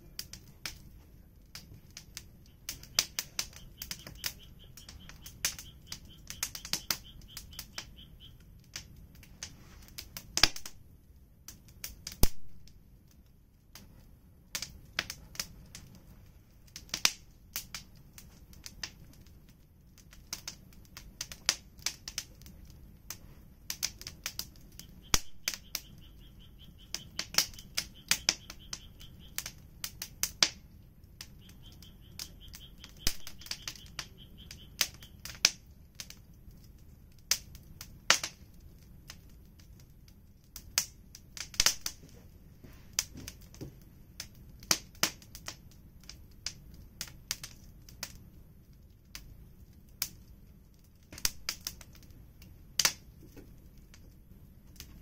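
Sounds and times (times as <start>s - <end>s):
wood fire crackling: 0.0s - 55.0s.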